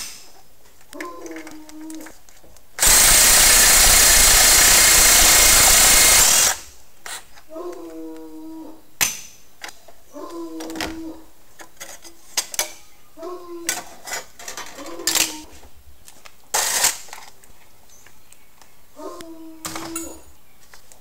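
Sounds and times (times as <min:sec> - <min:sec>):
power driver whirring: 0:02.8 - 0:06.7.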